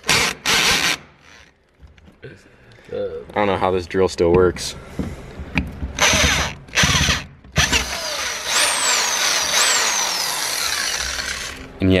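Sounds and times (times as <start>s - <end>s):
drill squealing: 6.0s - 11.7s
power drill boring through metal: 6.0s - 11.7s.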